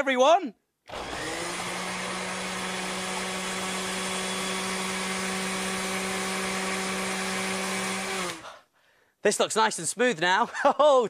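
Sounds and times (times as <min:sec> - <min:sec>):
food processor motor running: 0:00.9 - 0:08.5.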